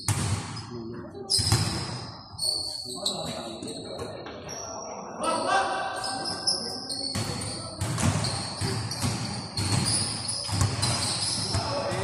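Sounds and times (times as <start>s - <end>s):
basketball bouncing on court: 0.0s - 0.6s, 1.4s - 2.0s, 7.1s - 12.0s
shoe squeaks: 0.0s - 3.8s, 6.0s - 11.9s.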